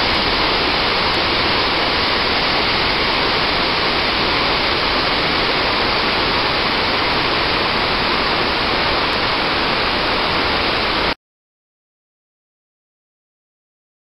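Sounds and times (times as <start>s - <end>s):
waterfall rushing: 0.0s - 11.2s.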